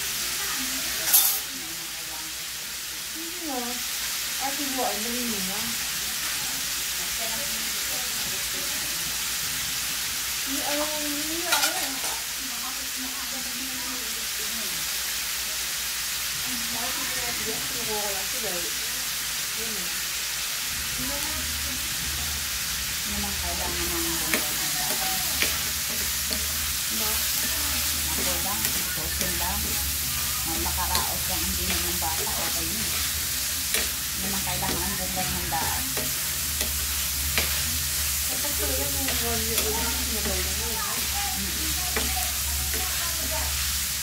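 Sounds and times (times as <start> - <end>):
meat sizzling in a pan: 0.0 - 44.0
spatula scraping a pan: 23.5 - 43.8.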